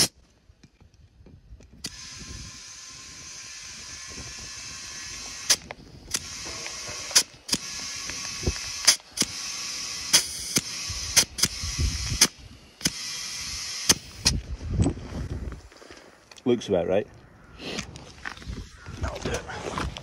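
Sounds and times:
compressed air hissing into tyre: 1.8 - 14.4
tyre inflator clicks: 1.8 - 14.4.

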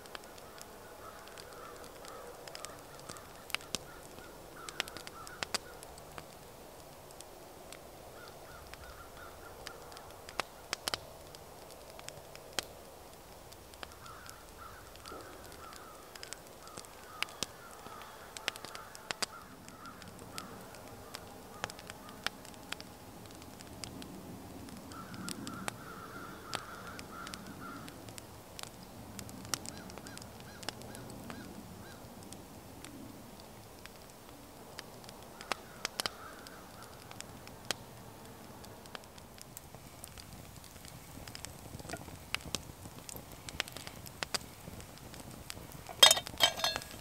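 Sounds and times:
campfire crackling: 0.0 - 47.0
bird calling: 45.9 - 47.0.

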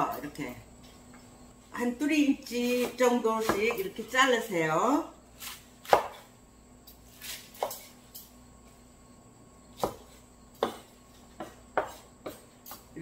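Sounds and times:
knife chopping on wooden board: 2.6 - 3.8, 5.4 - 6.3, 7.2 - 7.9, 9.8 - 12.9.

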